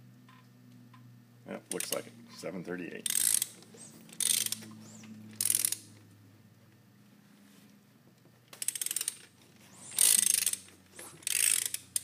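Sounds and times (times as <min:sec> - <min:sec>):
ratchet wrench clicking: 0:03.0 - 0:04.6, 0:05.4 - 0:05.9, 0:08.6 - 0:09.3, 0:10.0 - 0:12.0.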